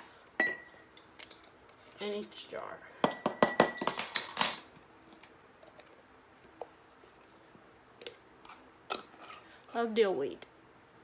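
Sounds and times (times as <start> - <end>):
metal spoon clinking on glass jars: 0.4 - 2.3, 3.0 - 4.6.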